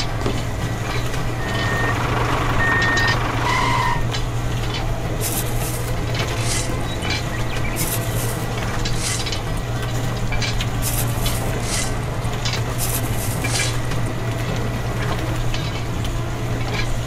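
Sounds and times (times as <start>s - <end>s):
steady low hum: 0.0s - 17.0s
grains rattling and pouring: 5.1s - 6.8s, 7.8s - 9.5s, 10.7s - 13.8s
metal scoop scraping grain: 5.2s - 6.9s, 7.8s - 9.4s, 10.8s - 12.1s, 12.8s - 13.8s.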